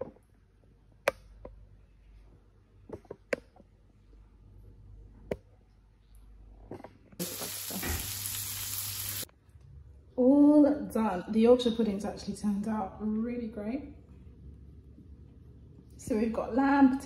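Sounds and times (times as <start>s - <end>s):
loud frying sizzle: 7.2s - 9.3s.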